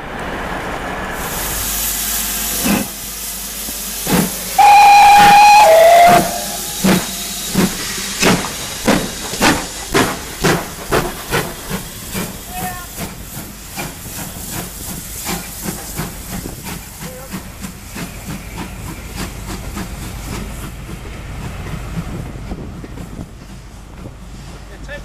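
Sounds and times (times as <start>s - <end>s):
steam hissing: 1.2s - 25.0s
steam locomotive exhaust beats: 1.2s - 25.0s
steam locomotive whistle: 4.1s - 7.5s.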